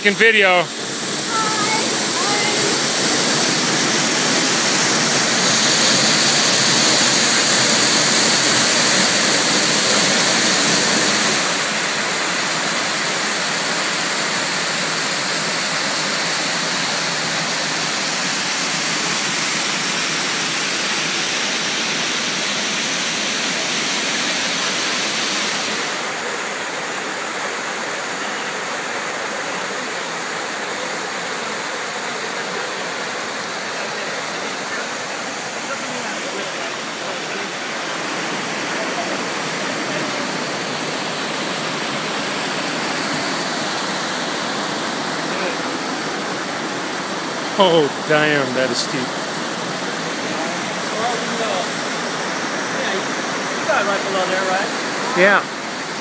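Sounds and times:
water rushing over rocks: 0.0s - 56.0s.

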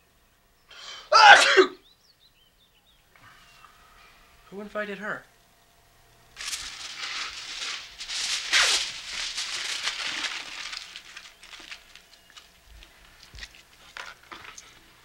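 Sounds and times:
aluminium foil crinkling: 6.4s - 15.0s.

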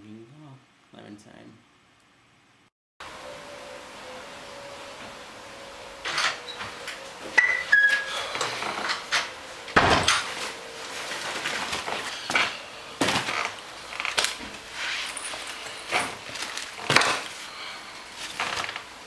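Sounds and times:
short squeaks: 7.4s - 9.3s
shopping bag rustling and thudding: 9.8s - 18.9s.

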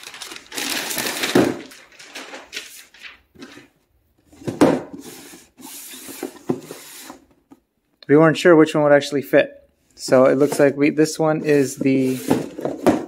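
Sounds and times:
plastic bag crinkling: 0.0s - 3.6s
cardboard boxes knocking on wood floor: 4.4s - 4.9s, 12.2s - 13.0s.

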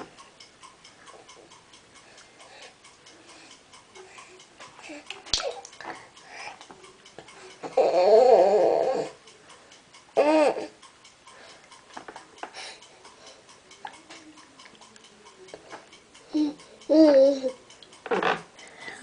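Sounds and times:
infant babbling and cooing: 7.7s - 9.2s, 16.3s - 17.6s.

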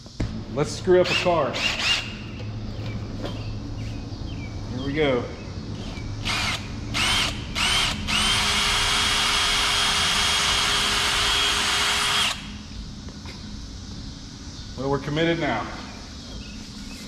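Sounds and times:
cordless drill whining: 6.2s - 12.5s.

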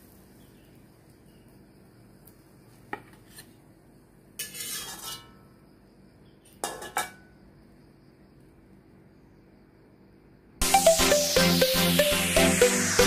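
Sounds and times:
metal spatula scraping wok: 4.4s - 5.4s.

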